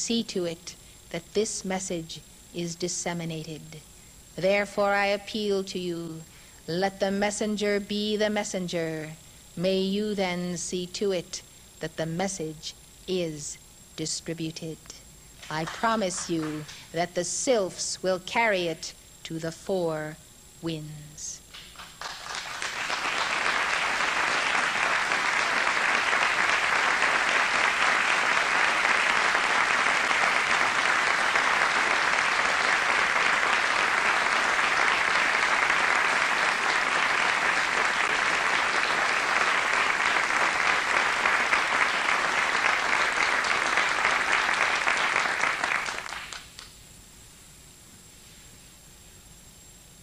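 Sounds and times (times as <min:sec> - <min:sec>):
audience applauding: 0:21.6 - 0:46.6.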